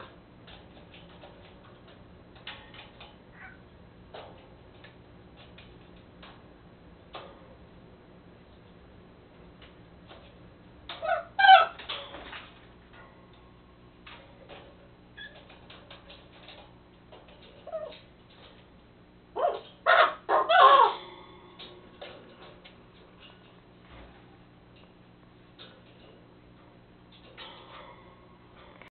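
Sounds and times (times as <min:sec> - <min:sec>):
raven babbling: 0:03.3 - 0:03.7, 0:19.4 - 0:21.1.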